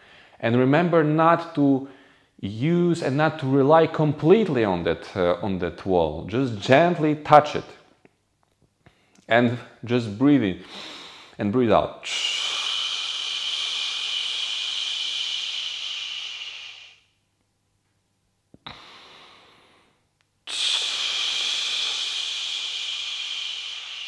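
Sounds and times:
man exhaling forcefully: 12.0s - 17.1s, 18.6s - 24.0s.

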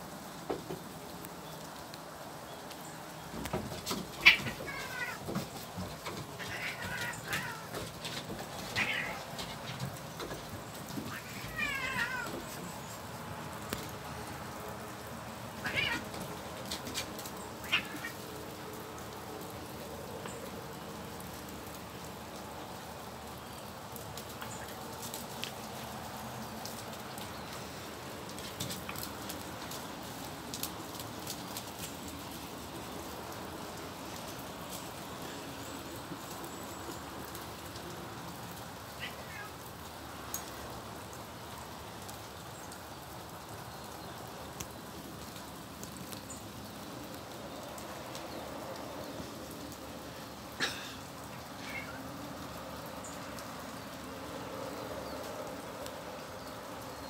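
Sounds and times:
steady rain falling: 0.0s - 57.0s
sharp water drips: 0.3s - 57.0s
cat meowing: 4.2s - 5.2s, 6.4s - 7.8s, 8.8s - 9.3s, 11.1s - 12.4s, 15.6s - 16.1s, 17.6s - 18.2s, 39.0s - 39.6s, 51.6s - 52.1s.

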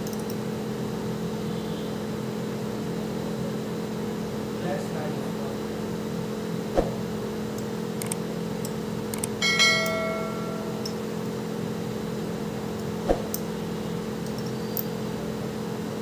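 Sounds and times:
vacuum pump humming: 0.0s - 16.0s
ringing clink: 9.4s - 11.0s.

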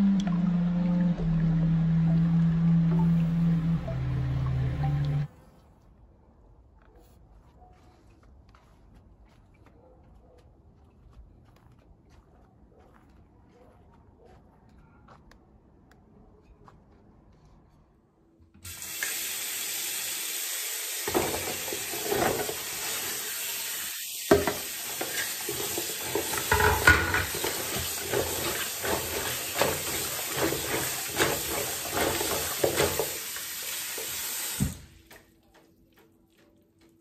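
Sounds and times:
tap water running into basin: 18.6s - 35.2s.

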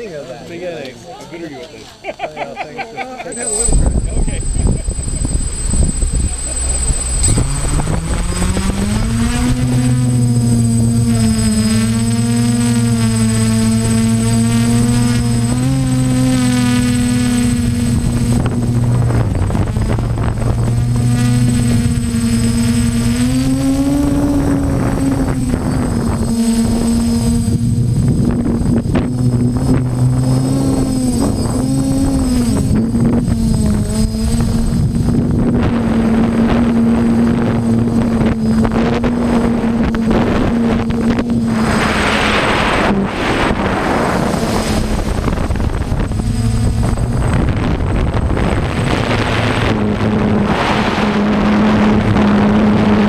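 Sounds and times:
drone propellers spinning: 3.2s - 53.0s.

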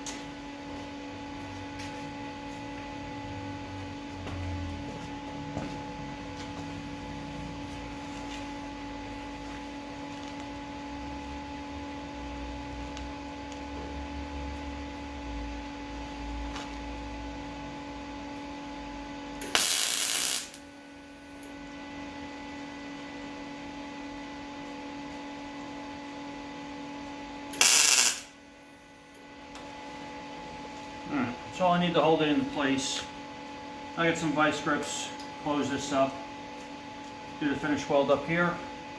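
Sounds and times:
steady hum: 0.0s - 38.9s
welding arc bursts: 19.4s - 20.6s, 27.6s - 28.4s.

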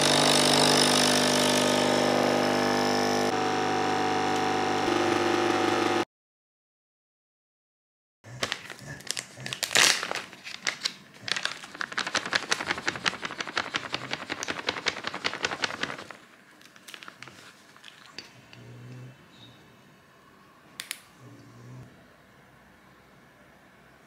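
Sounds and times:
plastic bag crinkling: 8.3s - 18.2s.

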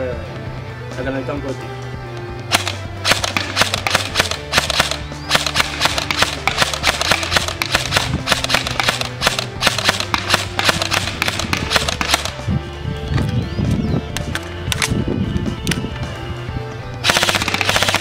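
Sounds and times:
background music: 0.0s - 18.0s
electric rifle single shots: 2.5s - 12.4s, 17.0s - 18.0s.

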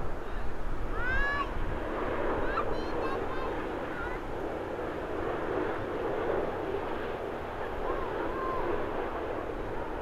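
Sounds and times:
airliner jet engines rushing: 0.0s - 10.0s.

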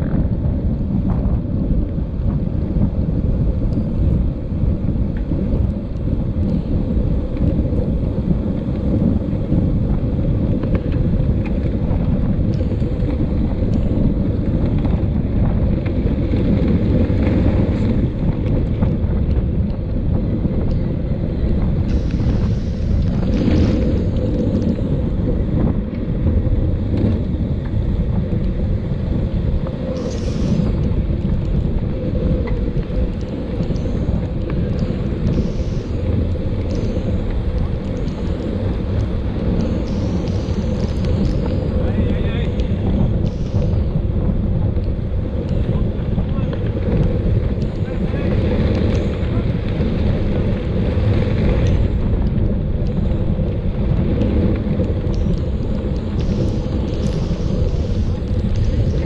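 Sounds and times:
bike clicks and rattles: 0.0s - 59.0s
wind buffeting microphone: 0.0s - 59.0s.

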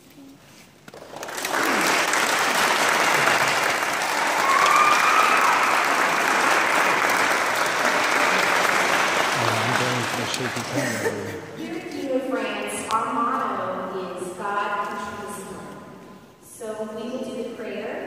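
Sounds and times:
audience applauding: 0.9s - 11.4s.

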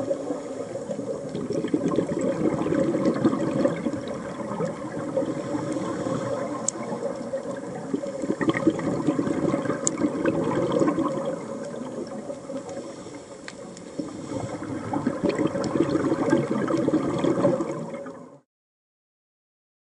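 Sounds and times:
regulator bubbles gurgling underwater: 0.0s - 18.4s
sharp underwater clicks: 1.2s - 12.8s.

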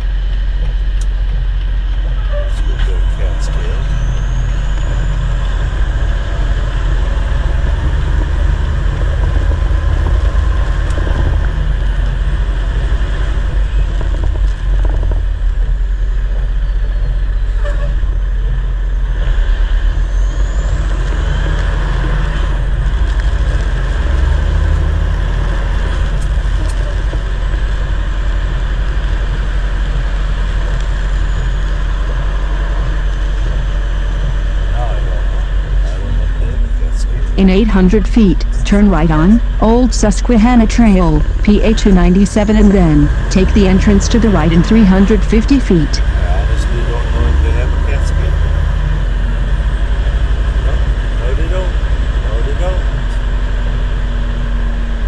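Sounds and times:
tyre noise on wet road: 0.0s - 36.2s
diesel engine low rumble: 0.0s - 55.0s.

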